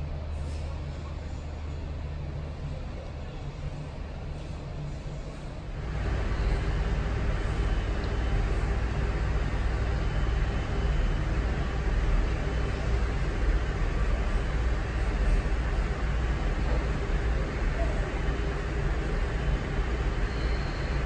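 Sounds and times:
airliner cabin engine rumble: 0.0s - 21.0s.

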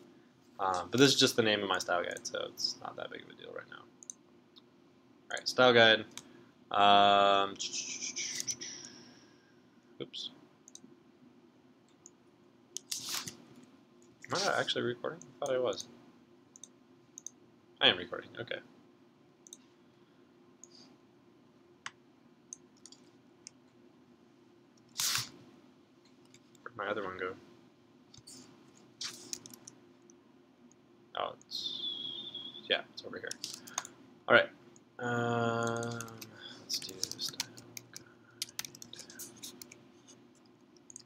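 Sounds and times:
low steady hum: 0.0s - 41.0s
computer mouse clicks: 16.5s - 17.4s, 19.4s - 19.7s, 21.8s - 23.6s, 28.1s - 30.2s, 33.3s - 34.0s, 35.6s - 39.8s, 40.4s - 41.0s.

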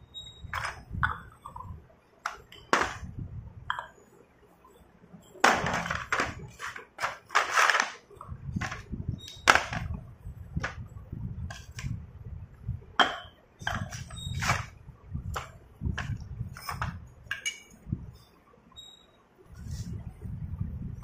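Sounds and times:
clay cups clinking and knocking: 0.6s - 3.0s, 3.6s - 4.1s, 13.0s - 14.8s, 15.4s - 17.8s.

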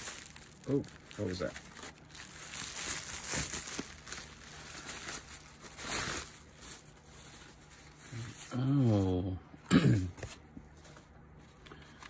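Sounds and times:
packaging crinkling: 0.0s - 8.1s.

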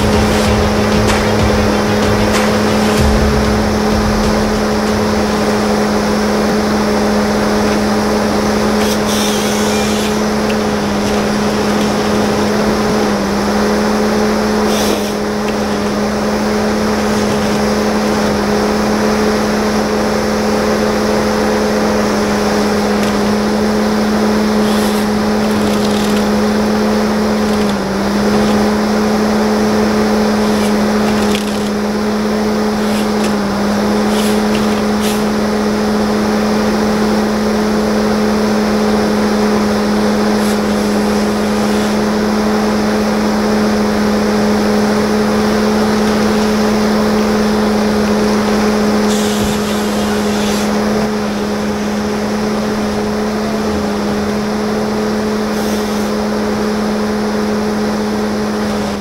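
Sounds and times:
diesel engine at high revs: 0.0s - 59.0s.

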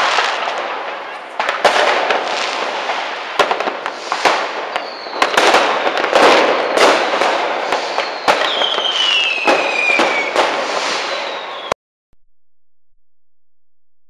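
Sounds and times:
firecracker crackle: 0.0s - 11.8s
firework bangs: 0.0s - 11.8s
falling firework whistle: 3.9s - 11.8s.

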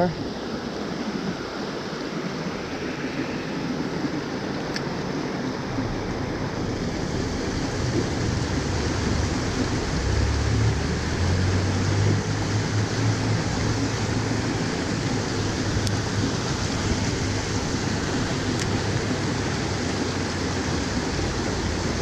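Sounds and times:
stream water running over rocks: 0.0s - 22.0s
low rumble on microphone: 5.4s - 22.0s.

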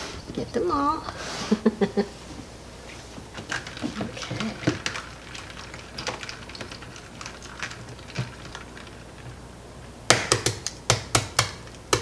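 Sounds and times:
eggs clicking in a bowl: 3.5s - 9.4s, 10.1s - 12.0s.

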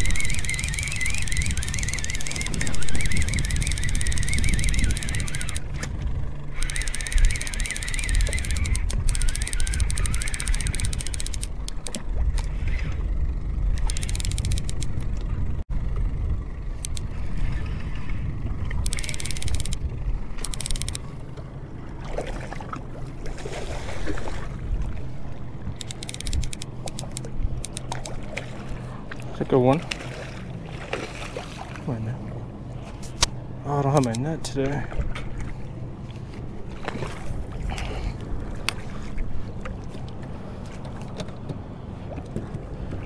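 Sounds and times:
fishing reel gears ticking: 0.0s - 5.8s, 6.5s - 12.8s, 13.6s - 15.0s, 16.8s - 17.4s, 18.8s - 21.2s, 25.8s - 28.1s
boat engine low rumble: 0.0s - 43.0s.

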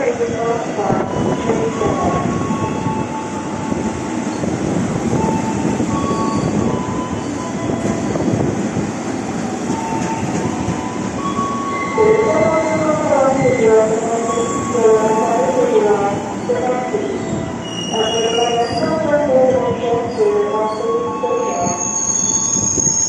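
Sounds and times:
train wheels rumbling on rails: 0.0s - 23.0s
high-pitched wheel squeals: 21.4s - 23.0s.

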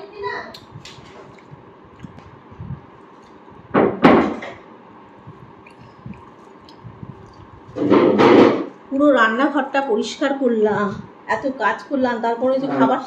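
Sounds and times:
faint room noises: 0.0s - 13.0s
door banging shut: 3.8s - 4.6s, 7.8s - 8.7s.

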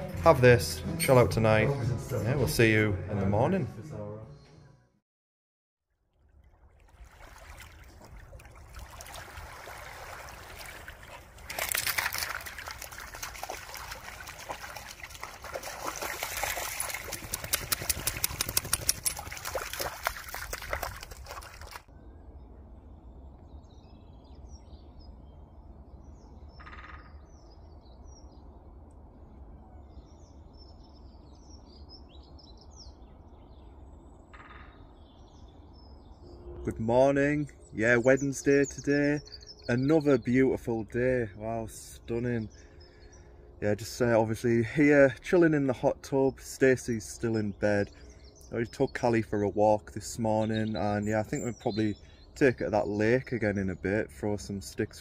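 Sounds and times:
quick splashes: 6.2s - 21.9s
water lapping over stones: 6.2s - 21.9s
birds chirping: 7.6s - 55.0s.

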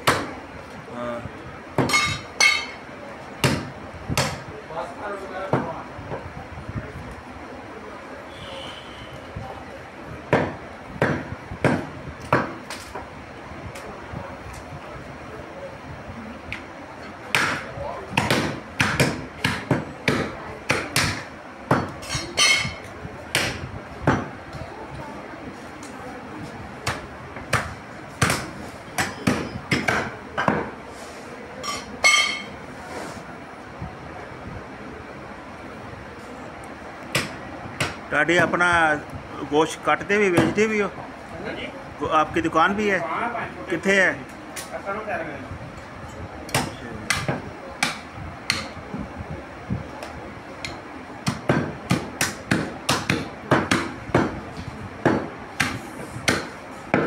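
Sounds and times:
cleaver chopping on wooden block: 17.3s - 22.0s, 51.2s - 54.4s, 55.0s - 57.0s.

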